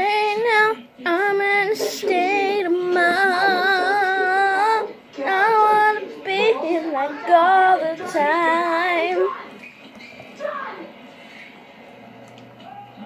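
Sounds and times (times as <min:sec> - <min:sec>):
girl singing unaccompanied: 0:00.0 - 0:09.4.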